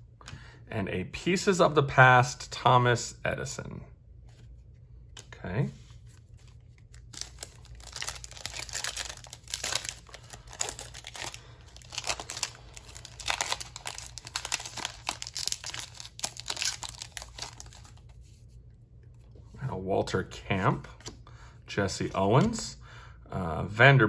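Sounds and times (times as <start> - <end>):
foil wrapper crinkling and tearing: 6.2 - 18.2.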